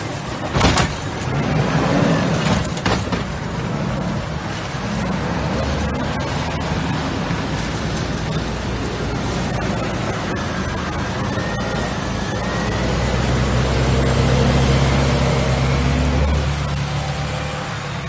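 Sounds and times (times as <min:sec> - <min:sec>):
diesel truck engine running: 0:00.0 - 0:18.0
tires through snow and slush: 0:00.0 - 0:18.0
metal clanks: 0:00.4 - 0:01.4.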